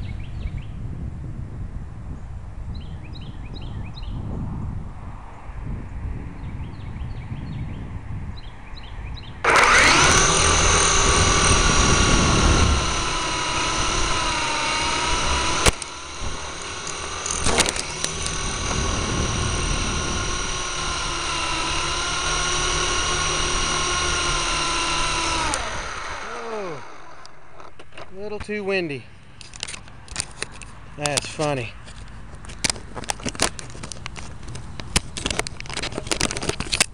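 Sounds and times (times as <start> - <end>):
toy helicopter motors whining: 9.4 - 27.7.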